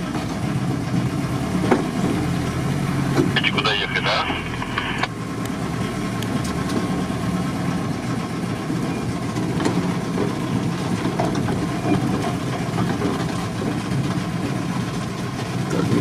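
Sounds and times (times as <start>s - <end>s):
van engine running: 0.0s - 16.0s
small knocks and rattles: 9.3s - 14.6s.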